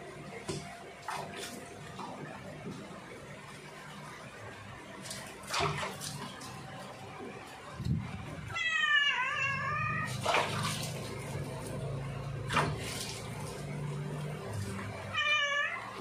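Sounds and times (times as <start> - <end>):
water splashing: 0.0 - 16.0
cat meowing: 8.5 - 10.2, 15.1 - 15.9.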